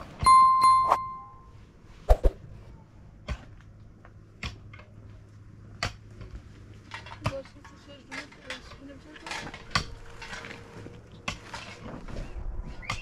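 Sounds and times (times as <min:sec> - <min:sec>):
bright bell-like chime: 0:00.2 - 0:01.5.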